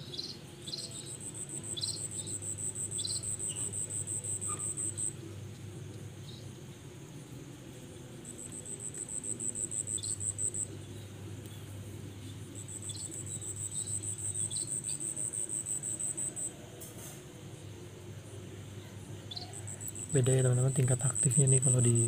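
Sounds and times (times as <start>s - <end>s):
insect trilling: 0.7s - 5.2s, 8.3s - 10.8s, 12.6s - 16.5s, 19.3s - 22.0s.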